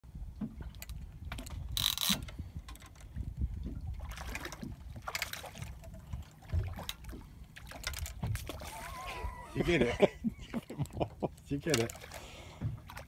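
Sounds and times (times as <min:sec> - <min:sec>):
wind rumbling on microphone: 0:00.0 - 0:11.1
fishing reel clicks: 0:01.8 - 0:02.3
fish splashing: 0:04.0 - 0:09.8.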